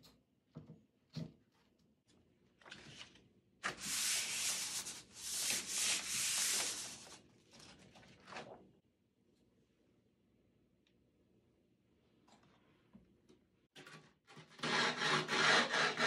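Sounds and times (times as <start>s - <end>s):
gritty paper rubbing: 3.7s - 7.2s.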